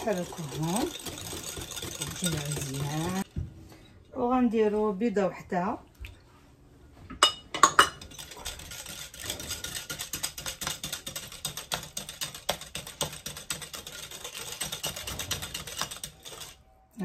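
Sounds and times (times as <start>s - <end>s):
whisk clicking against glass bowl: 0.0s - 3.3s, 8.0s - 16.6s.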